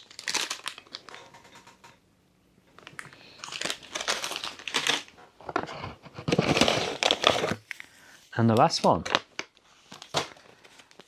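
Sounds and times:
foil pouches crinkling: 0.0s - 1.4s, 2.8s - 5.1s.

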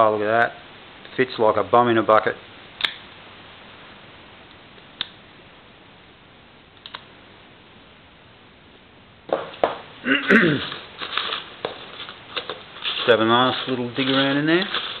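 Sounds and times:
hand rummaging through packing peanuts: 10.4s - 15.0s.

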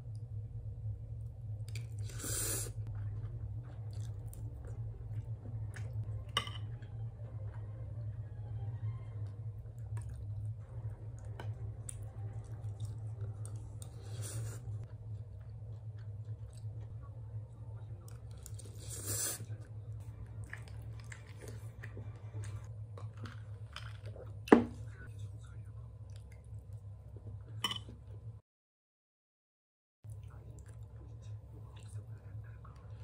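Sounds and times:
steady low hum: 0.0s - 28.4s, 30.1s - 33.0s
person chewing food: 1.6s - 6.9s, 9.2s - 28.0s.

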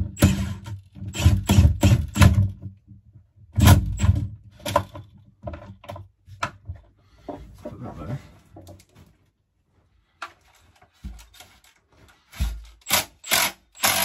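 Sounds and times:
impact driver rattling bursts: 0.0s - 2.5s, 12.4s - 14.0s.

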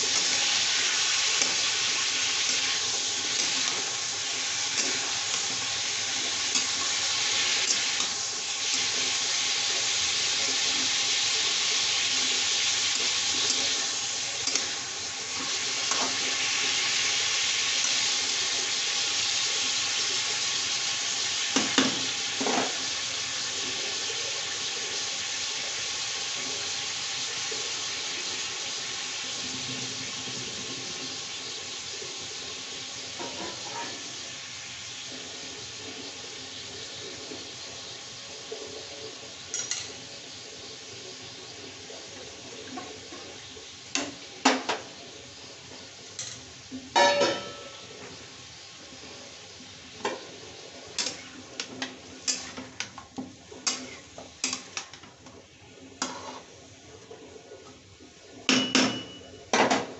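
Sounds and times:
spatula scraping pan: 0.0s - 9.5s, 33.2s - 34.0s, 50.0s - 55.1s, 55.9s - 57.2s
chicken sizzling in oil: 0.0s - 59.9s.

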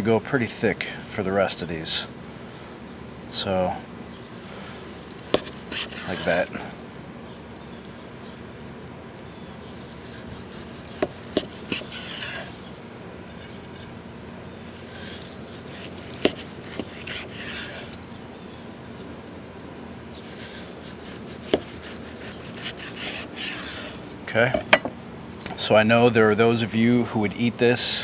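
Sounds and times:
knife sawing through meat crust: 4.4s - 6.5s, 9.9s - 12.7s, 14.7s - 18.0s, 20.2s - 24.0s
knife knocking on wooden board: 24.6s - 25.0s.

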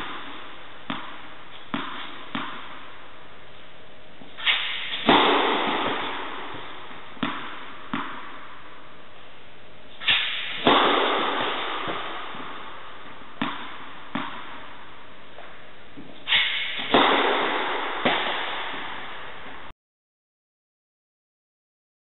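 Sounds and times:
tennis ball bouncing on court: 0.0s - 3.0s, 4.2s - 8.7s, 10.0s - 14.8s, 15.4s - 19.6s
racket hitting tennis ball: 0.0s - 3.6s, 4.2s - 8.8s, 9.9s - 19.7s
steady hiss: 0.0s - 19.7s.

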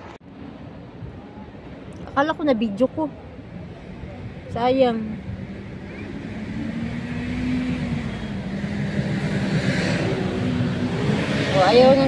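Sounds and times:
vehicle engine humming: 0.0s - 12.0s
rushing noise: 3.2s - 12.0s.

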